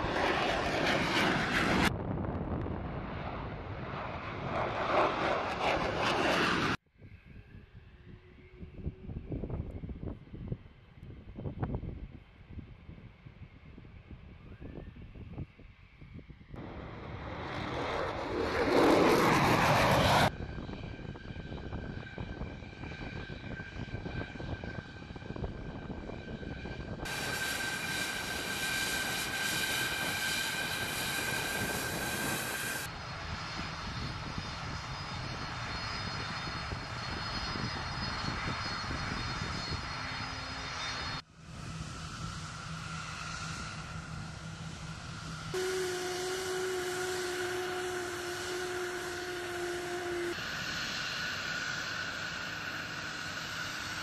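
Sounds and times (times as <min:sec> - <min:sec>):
jet passing with falling pitch: 0:00.0 - 0:06.8, 0:16.6 - 0:20.6, 0:26.7 - 0:34.0, 0:34.6 - 0:54.0
jet engines whining while taxiing: 0:00.0 - 0:54.0
turbofans humming while taxiing: 0:16.6 - 0:54.0.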